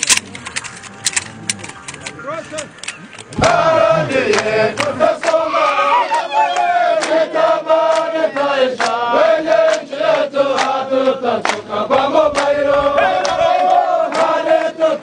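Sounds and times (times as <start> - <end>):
voices chanting in chorus: 3.3 - 15.0.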